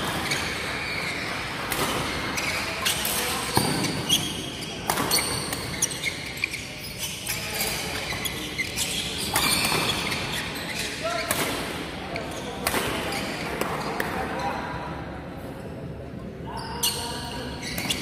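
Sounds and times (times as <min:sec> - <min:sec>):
rackets hitting shuttlecock: 0:00.0 - 0:04.2, 0:04.8 - 0:06.0, 0:09.2 - 0:10.2
shoes squeaking on court: 0:00.0 - 0:11.3, 0:12.1 - 0:14.1, 0:16.5 - 0:18.0.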